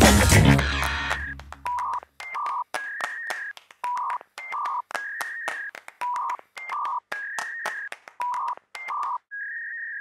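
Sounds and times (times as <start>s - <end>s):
music: 0.0s - 1.6s
sharp clicks: 1.6s - 9.2s.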